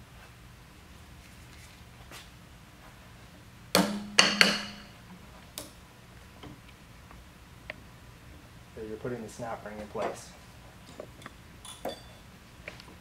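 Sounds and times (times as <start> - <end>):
metal clanks with ringing: 3.9 - 5.0, 11.7 - 12.2.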